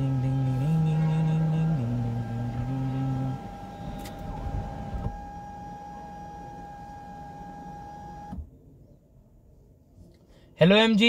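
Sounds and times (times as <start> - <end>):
sunroof motor whining: 0.0 - 8.4
sunroof shutting click: 0.1 - 8.5.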